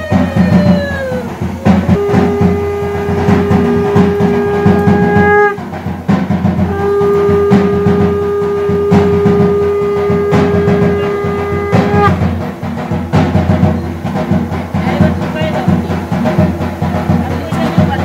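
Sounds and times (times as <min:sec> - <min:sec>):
conch shells blown: 0:00.0 - 0:12.4
steady drumming: 0:00.0 - 0:18.0.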